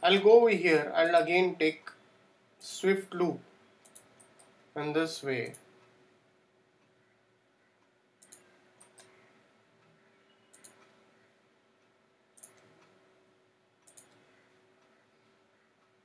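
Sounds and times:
faint steady hum: 0:00.0 - 0:16.0
computer mouse clicks: 0:03.8 - 0:04.6, 0:08.2 - 0:11.0, 0:12.3 - 0:13.0, 0:13.8 - 0:15.0.

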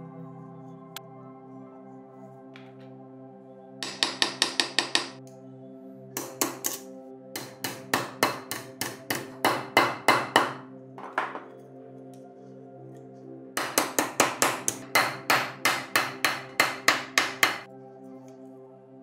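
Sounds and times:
ambient background music: 0:00.0 - 0:19.0
hammer striking steel wire: 0:03.8 - 0:05.2, 0:06.2 - 0:10.6, 0:13.6 - 0:17.7.

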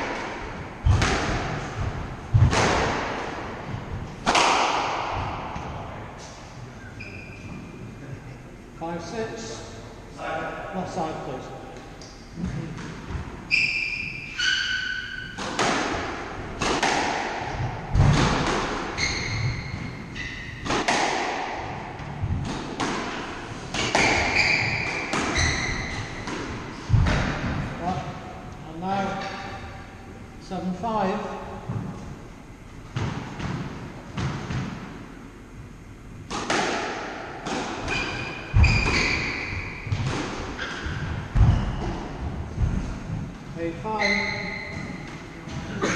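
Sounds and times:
squash ball cracking off rackets: 0:00.0 - 0:03.5, 0:04.1 - 0:05.6, 0:15.4 - 0:19.3, 0:20.6 - 0:27.7
squash ball hitting rackets and walls: 0:00.0 - 0:06.4, 0:12.0 - 0:28.2, 0:31.6 - 0:45.8
shoes squeaking on wooden floor: 0:19.0 - 0:20.4, 0:24.0 - 0:26.2, 0:44.0 - 0:45.9
heavy thuds: 0:26.1 - 0:27.9, 0:39.9 - 0:43.6.

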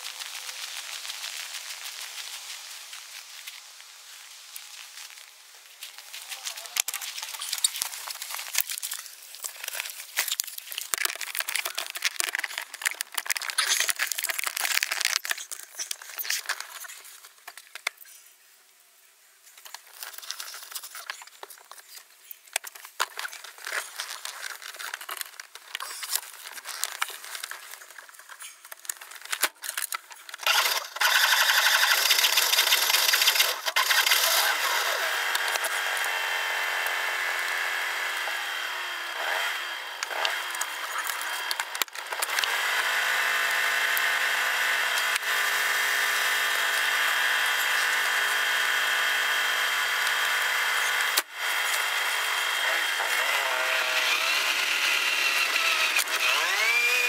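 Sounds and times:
handling clicks and rustling: 0:05.8 - 0:18.1, 0:19.5 - 0:30.5.

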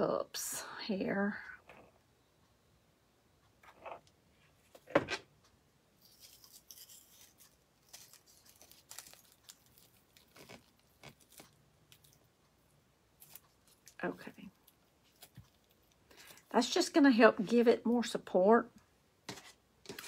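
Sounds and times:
crackling and rustling of styrofoam: 0:06.0 - 0:12.1, 0:19.2 - 0:20.0.

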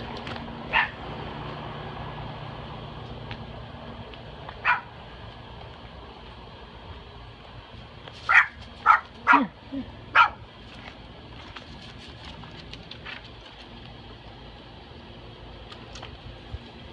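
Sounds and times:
dog barking: 0:00.7 - 0:01.0, 0:04.6 - 0:04.9, 0:08.3 - 0:09.5, 0:10.1 - 0:10.4.

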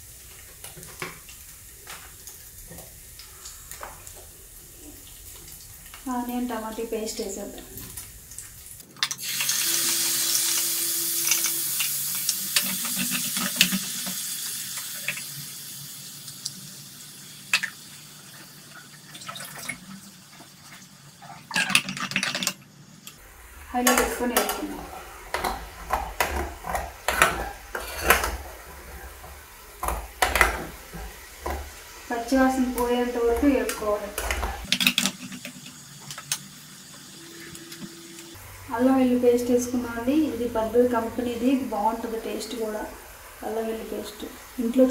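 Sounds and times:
paste sizzling in hot oil: 0:00.0 - 0:19.1, 0:23.2 - 0:44.9
spoon clinking and scraping pan: 0:23.8 - 0:35.4.

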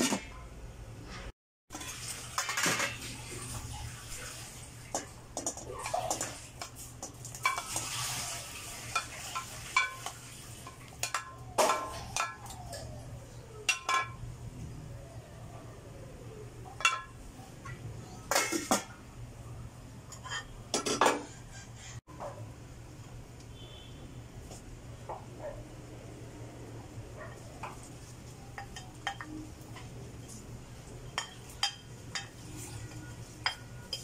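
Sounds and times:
wooden spoon stirring in pot: 0:03.5 - 0:11.2.

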